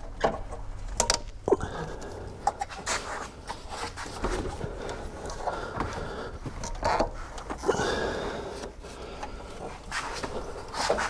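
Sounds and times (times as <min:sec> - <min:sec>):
rubber belt rubbing and scraping: 0:02.6 - 0:05.6, 0:08.4 - 0:11.0.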